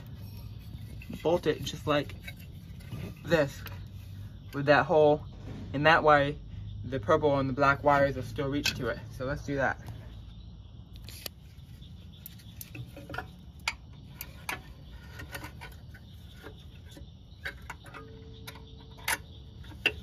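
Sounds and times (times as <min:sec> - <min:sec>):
small metallic clicks and taps: 0:12.2 - 0:20.0.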